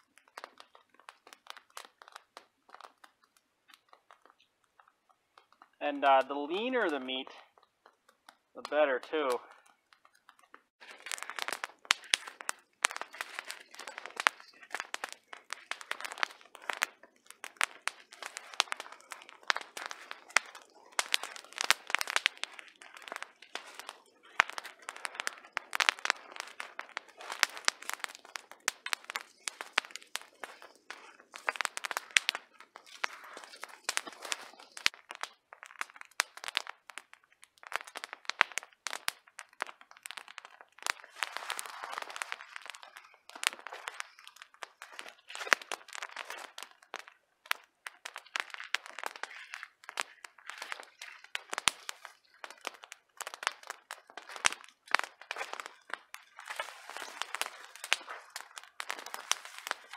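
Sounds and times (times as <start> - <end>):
twigs crackling and snapping: 0.0 - 59.9
footsteps crunching on snow: 10.8 - 34.9, 41.0 - 42.6.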